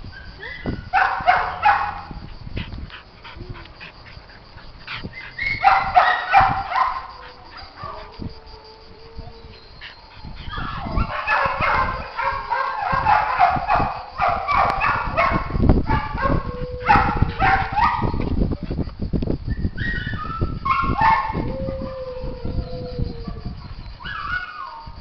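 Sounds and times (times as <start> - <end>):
dogs barking: 0.9 - 2.2, 5.0 - 8.0, 9.8 - 18.2, 19.9 - 21.4.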